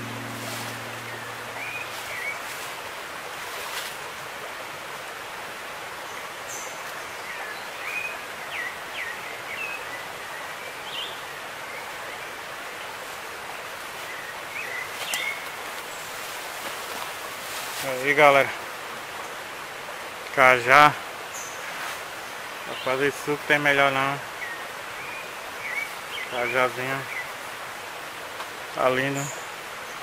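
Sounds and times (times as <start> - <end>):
steady rushing hiss: 11.5 - 30.0.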